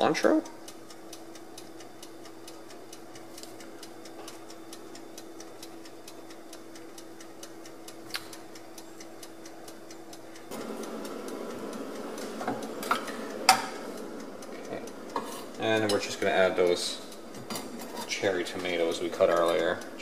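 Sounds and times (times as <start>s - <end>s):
faint steady hum: 0.0s - 20.0s
rapid mechanical ticking: 0.0s - 20.0s.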